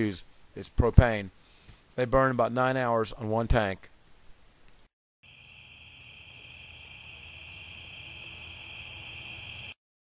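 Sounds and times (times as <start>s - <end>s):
crickets trilling: 5.2s - 9.8s.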